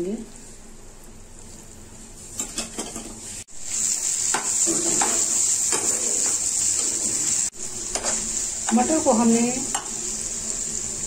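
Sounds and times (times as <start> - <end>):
peas sizzling in a frying pan: 2.4 - 11.0
spatula scraping a pan: 4.3 - 8.3.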